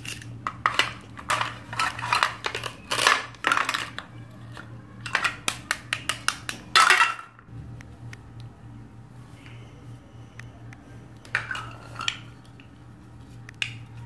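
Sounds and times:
toy pieces tapping on plastic board: 0:05.1 - 0:06.7.

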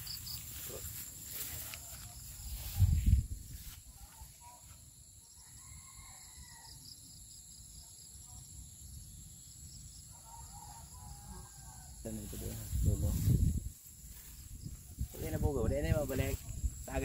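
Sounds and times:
insects droning: 0:00.0 - 0:17.0
low rumble on microphone: 0:12.4 - 0:13.8.

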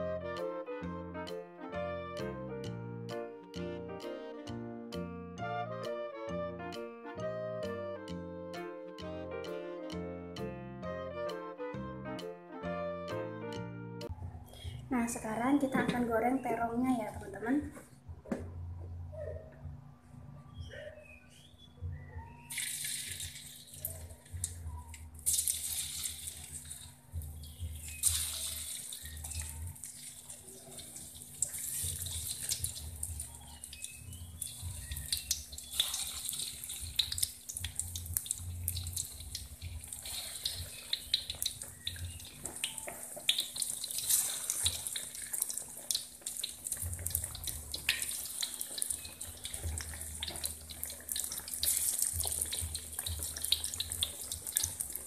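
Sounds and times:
eggplant deep-frying in oil: 0:22.4 - 0:55.0
oil crackling and spitting: 0:22.5 - 0:24.6, 0:25.2 - 0:55.0.

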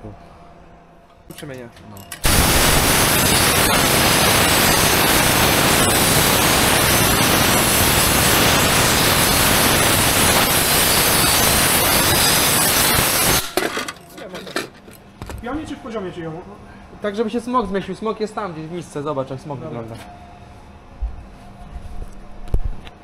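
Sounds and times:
spray gun hissing: 0:02.2 - 0:13.5.

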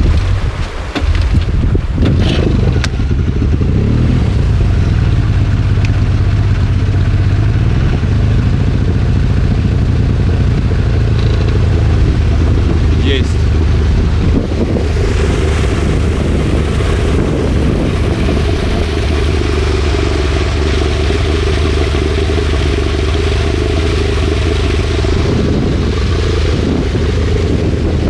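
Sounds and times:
outboard motor droning: 0:00.0 - 0:28.0
knocks and clatters: 0:11.0 - 0:11.9.

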